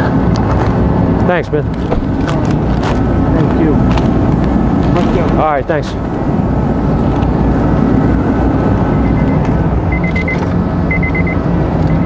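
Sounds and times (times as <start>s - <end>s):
humming whine: 0.0s - 12.0s
rapid beeping: 8.9s - 12.0s.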